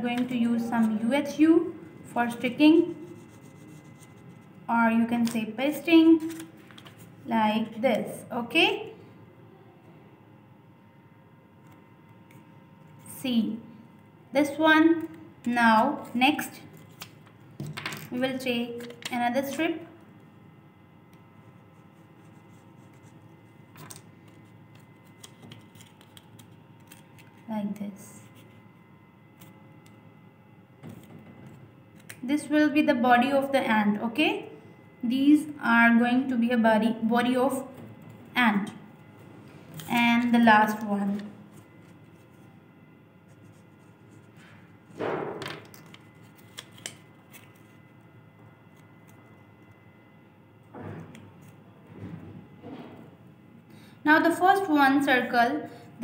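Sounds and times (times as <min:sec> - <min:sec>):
paper strip rustling: 0:23.8 - 0:27.4, 0:45.8 - 0:47.8.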